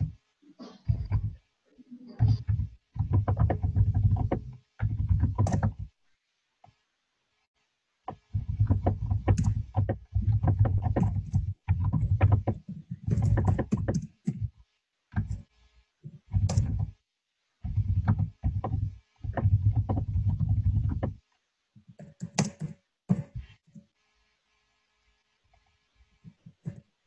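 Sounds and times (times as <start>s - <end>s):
typing on keyboard: 2.2s - 5.9s, 8.1s - 14.5s, 16.3s - 16.9s, 17.6s - 21.2s, 21.9s - 23.3s.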